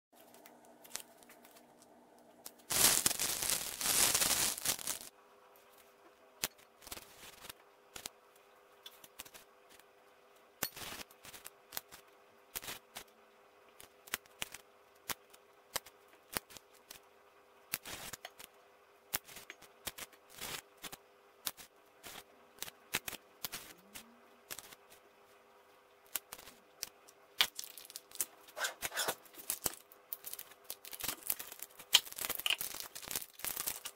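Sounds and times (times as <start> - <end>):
plastic packaging crinkling: 2.6 - 5.1, 27.4 - 33.9.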